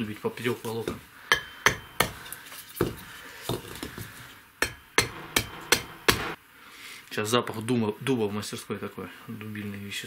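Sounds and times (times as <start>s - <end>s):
hatchet chopping wood: 0.9s - 4.0s, 4.6s - 6.4s.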